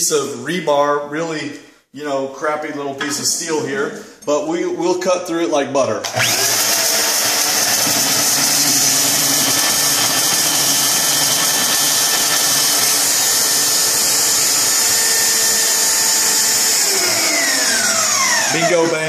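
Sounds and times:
bandsaw cutting metal: 6.0 - 19.0.

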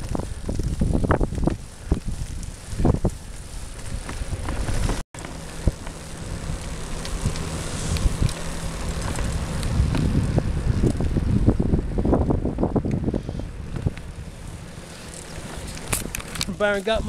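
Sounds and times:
clicks and knocks from riding: 0.0 - 10.2, 13.7 - 17.0
tyre and frame rumble: 0.0 - 17.0
wind buffeting microphone: 0.0 - 17.0.

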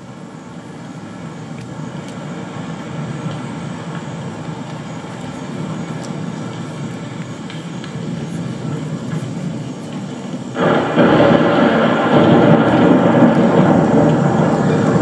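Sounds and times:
low rumbling ambience: 0.0 - 15.0
faint ticks: 3.2 - 8.0.

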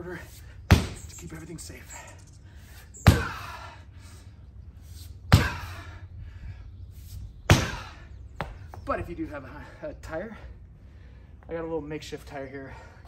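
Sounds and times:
sledgehammer thudding on rubber mat: 0.7 - 1.1, 3.0 - 3.4, 5.3 - 5.7, 7.5 - 8.6.

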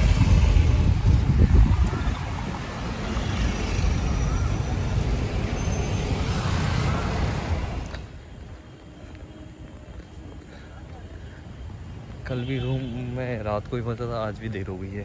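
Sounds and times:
vehicle road and engine rumble: 0.0 - 15.0.

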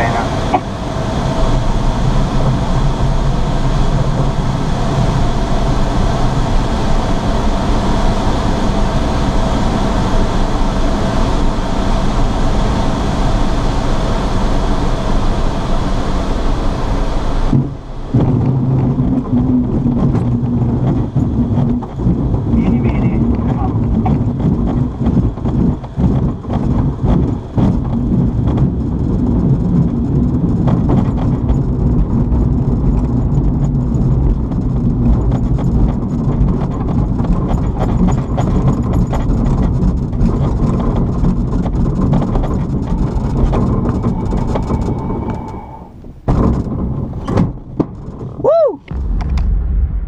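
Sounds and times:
glider wheel rumbling over grass: 0.0 - 50.0
fuselage knocks and rattles: 17.5 - 44.9, 46.3 - 49.5
brief swooping tone: 43.9 - 46.0
sharp whoosh: 48.8 - 50.0.

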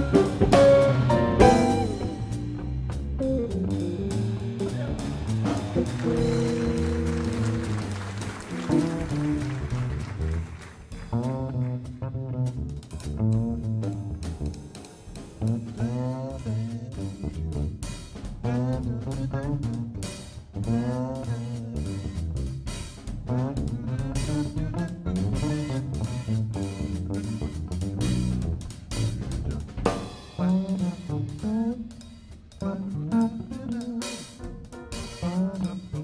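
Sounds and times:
guitar: 0.0 - 12.6
electric bass lines: 0.0 - 31.9
drum kit and cymbals: 0.0 - 36.0.

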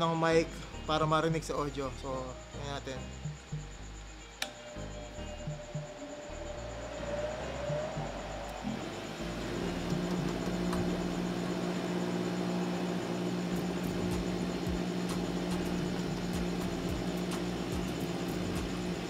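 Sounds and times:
light irregular ticking: 0.4 - 19.0
bench grinder motor hum: 4.4 - 19.0.

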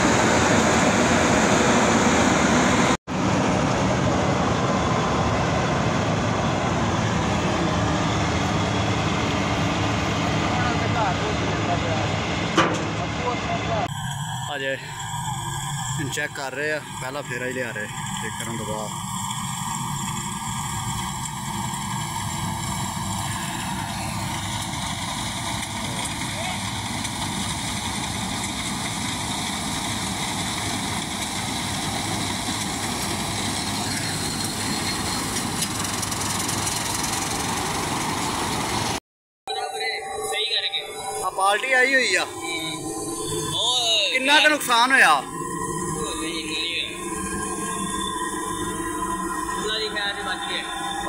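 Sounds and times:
combine harvester mechanical din: 0.0 - 39.0.

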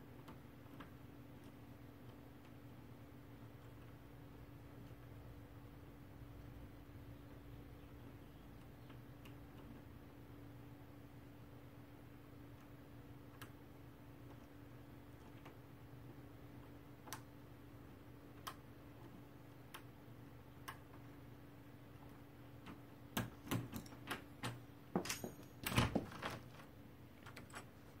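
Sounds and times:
door swinging open: 25.0 - 26.6.

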